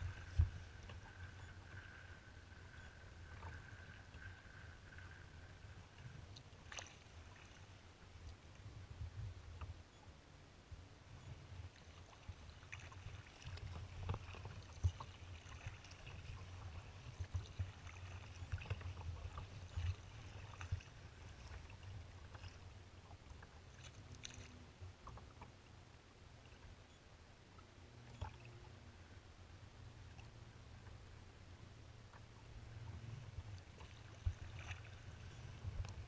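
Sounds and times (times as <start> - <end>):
wind rumble on microphone: 0.0 - 6.7, 8.0 - 10.0, 10.6 - 23.6, 28.5 - 36.0
choppy water lapping: 0.0 - 9.1, 11.4 - 26.7, 32.1 - 36.0
small water splashes: 6.4 - 7.8, 11.7 - 25.5, 28.0 - 28.7, 33.5 - 36.0.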